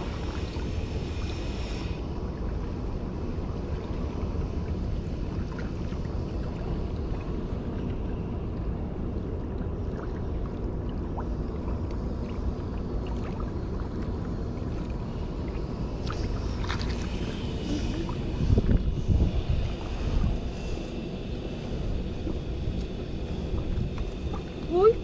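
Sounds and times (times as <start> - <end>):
sea water on rocky shore: 0.0 - 25.0
wind on microphone: 12.0 - 25.0.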